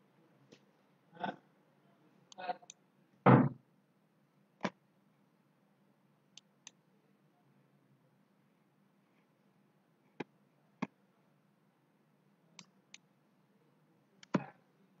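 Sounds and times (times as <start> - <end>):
dull thump: 3.3 - 3.6.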